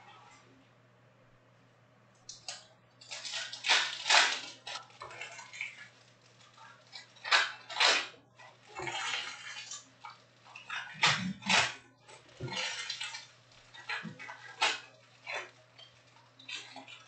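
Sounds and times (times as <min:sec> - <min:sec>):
foil card packs crinkling and tearing: 0:03.0 - 0:05.9.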